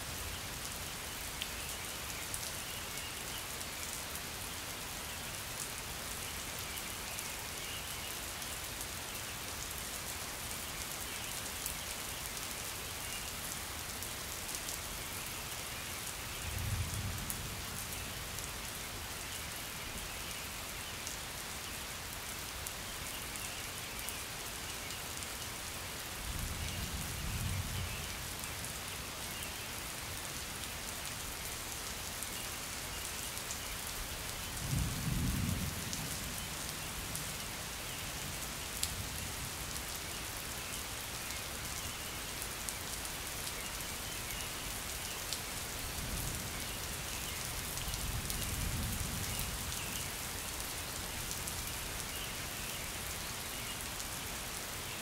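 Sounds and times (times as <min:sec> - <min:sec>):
steady rain falling: 0:00.0 - 0:55.0
low rumbles of thunder: 0:34.6 - 0:36.2.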